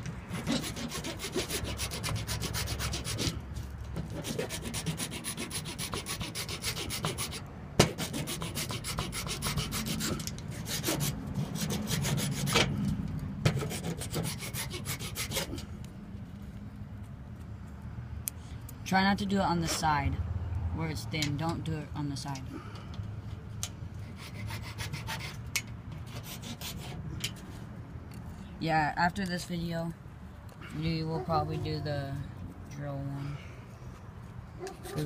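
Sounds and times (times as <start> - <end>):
sanding strokes on plastic: 0.2 - 3.4, 4.0 - 12.7, 13.5 - 15.6, 24.0 - 25.4, 26.0 - 27.0.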